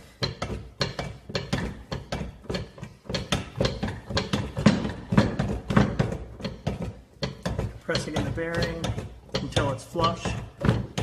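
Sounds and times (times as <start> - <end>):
shop press clicking and knocking: 0.1 - 11.0.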